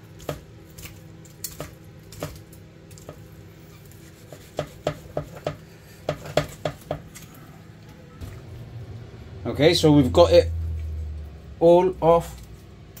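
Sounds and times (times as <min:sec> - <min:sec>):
knife sawing meat off bones: 0:03.7 - 0:06.6.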